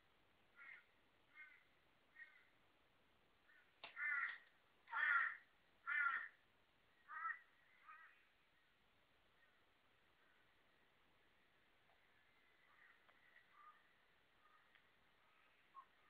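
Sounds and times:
crow cawing: 0.6s - 2.5s, 3.5s - 6.4s, 7.0s - 8.3s, 12.2s - 14.7s.

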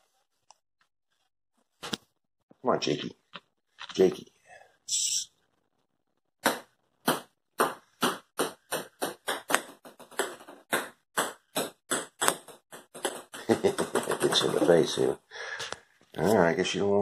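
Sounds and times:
ping pong balls bouncing on tiles: 6.4s - 14.8s.

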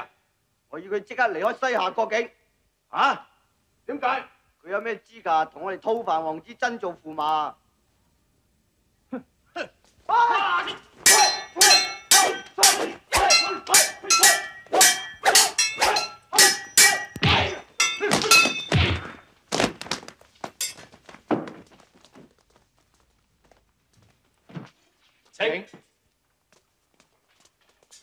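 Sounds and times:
metal weapons clashing: 11.0s - 19.2s, 20.6s - 20.8s
heavy thuds of blows: 11.0s - 21.7s.

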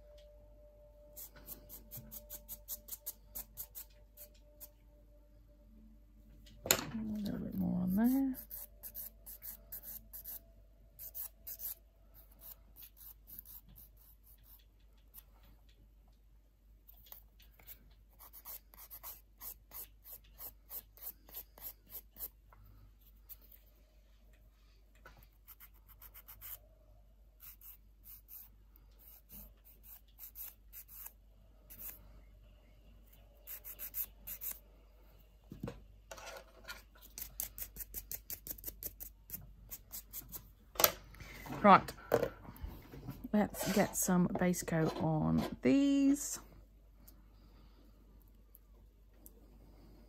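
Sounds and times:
nail tool scratching fingernail: 1.2s - 3.9s, 8.1s - 10.4s, 11.0s - 15.3s, 16.9s - 22.4s, 25.4s - 26.6s, 27.4s - 31.1s, 33.4s - 34.6s, 37.0s - 40.2s
scratchy rubbing on fingernails: 7.9s - 10.4s, 17.1s - 22.4s, 25.4s - 26.6s, 33.4s - 34.6s.

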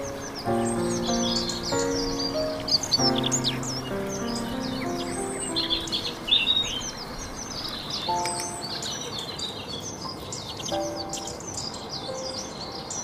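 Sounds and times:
soft sustained music chords: 0.0s - 13.0s
songbirds chirping: 0.0s - 13.0s.

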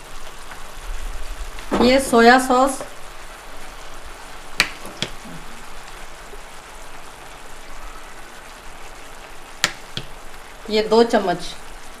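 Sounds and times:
sauce sizzling in a frying pan: 0.0s - 12.0s.

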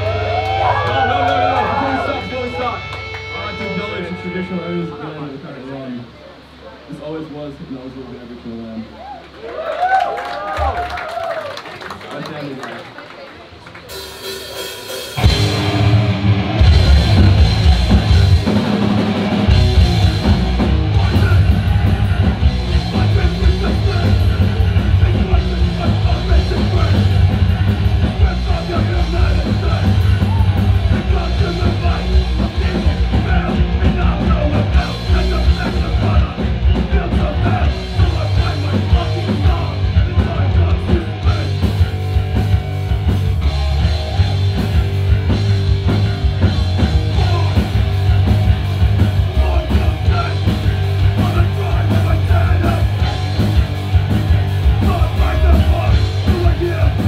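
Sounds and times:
heavy rock band playing: 0.0s - 5.4s, 13.8s - 57.0s
pounding drum kit: 13.8s - 57.0s.

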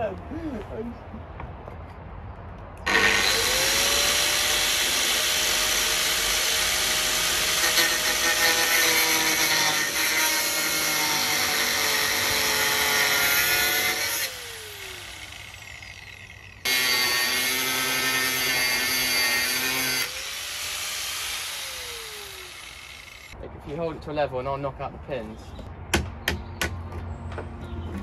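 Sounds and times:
angle grinder grinding metal: 2.9s - 23.4s.

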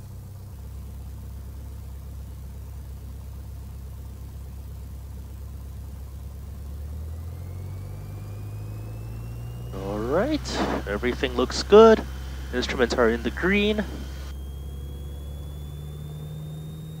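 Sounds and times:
airplane engine droning at full power: 0.0s - 17.0s
faint rising tone: 6.7s - 17.0s.

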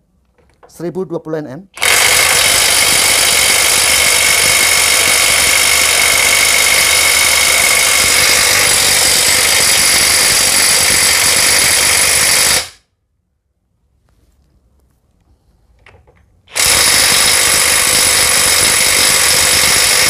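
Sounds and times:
impact wrench hammering: 1.8s - 12.8s, 16.5s - 20.0s.

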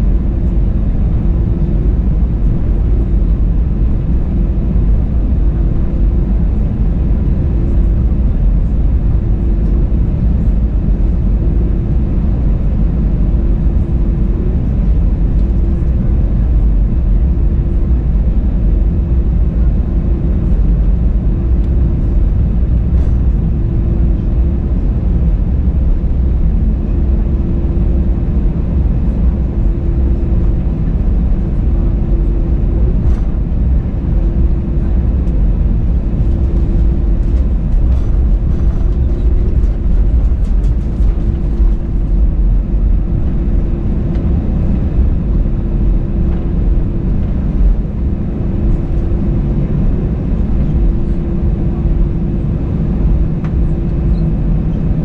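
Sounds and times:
engine and airflow drone: 0.0s - 55.0s
steady hum: 0.0s - 55.0s.

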